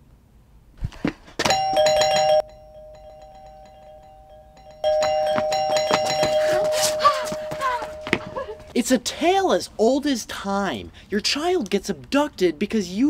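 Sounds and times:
electronic doorbell two-note tone: 1.5s - 8.8s.

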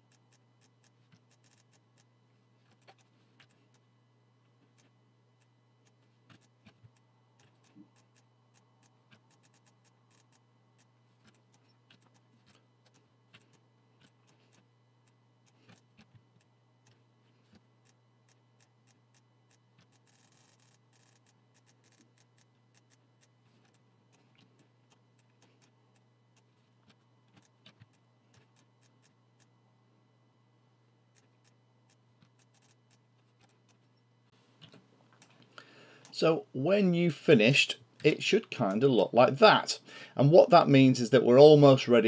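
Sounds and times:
mouse and keyboard clicking: 0.1s - 2.1s, 4.7s - 29.5s, 31.1s - 33.9s.

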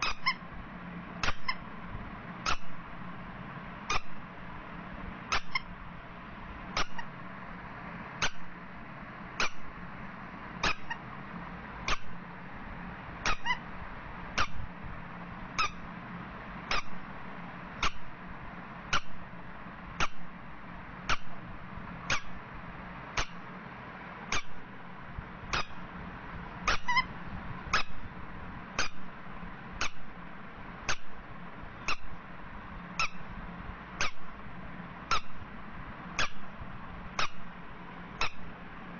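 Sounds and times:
rubber duck squeaking: 0.0s - 0.4s, 1.2s - 1.6s, 2.5s - 2.7s, 5.3s - 5.7s, 10.6s - 11.0s, 13.3s - 13.6s, 16.7s - 17.0s, 24.3s - 24.6s, 26.7s - 27.1s, 33.0s - 33.2s, 35.1s - 35.4s.

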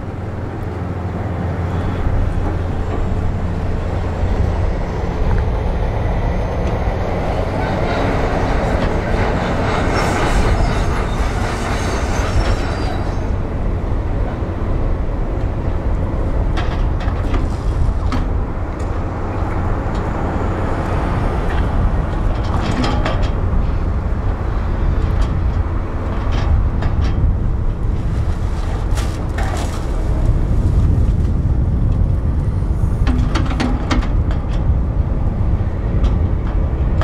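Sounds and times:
excavator diesel engine rumble: 0.0s - 37.0s.

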